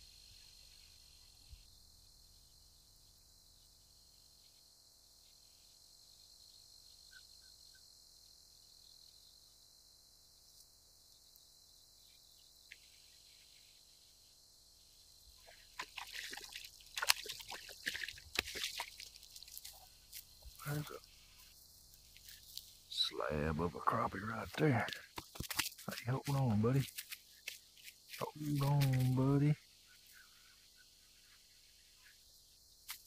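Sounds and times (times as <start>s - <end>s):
faint outdoor hiss: 0.0s - 33.0s
fish splashing at water surface: 15.4s - 19.8s.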